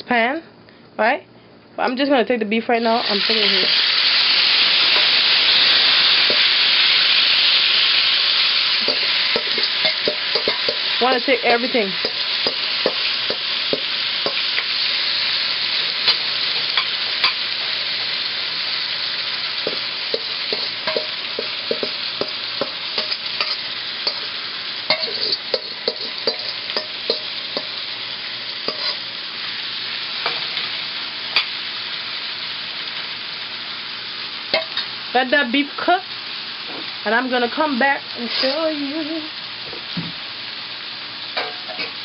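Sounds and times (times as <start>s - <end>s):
meat sizzling in a frying pan: 2.9s - 42.0s
utensil scraping pan: 8.8s - 11.3s, 19.7s - 24.3s, 24.9s - 27.8s, 28.6s - 29.0s, 38.2s - 38.6s.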